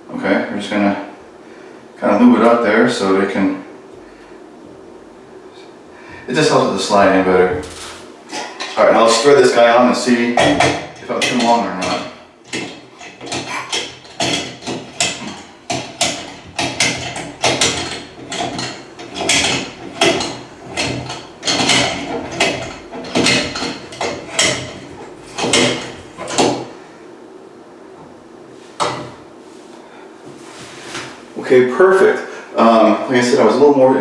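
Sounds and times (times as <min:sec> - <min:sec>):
spout rubbing and clicking on pipe: 0:10.4 - 0:26.7.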